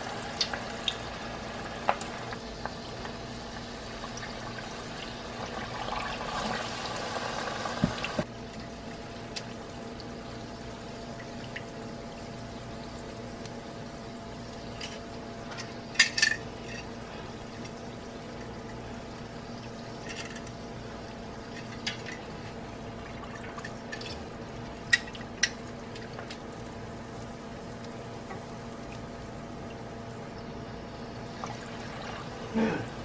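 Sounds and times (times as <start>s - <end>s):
food sizzling in frying oil: 0.0s - 8.3s.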